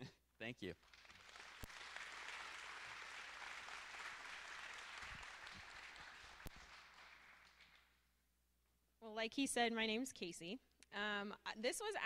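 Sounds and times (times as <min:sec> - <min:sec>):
faint audience applause: 0:00.8 - 0:08.0.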